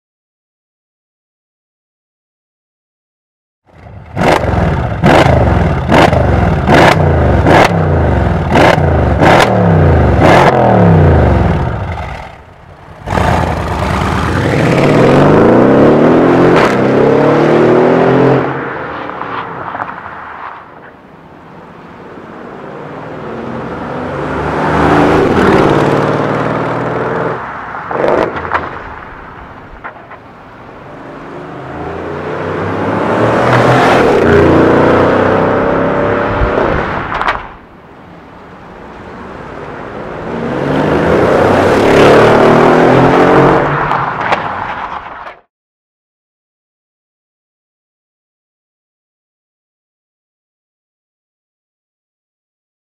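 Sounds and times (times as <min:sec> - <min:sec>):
car engine revving: 0:03.8 - 0:18.7, 0:23.6 - 0:28.5, 0:31.6 - 0:37.0, 0:40.3 - 0:43.9
car accelerating away: 0:13.0 - 0:18.6, 0:31.4 - 0:36.9, 0:40.3 - 0:43.8.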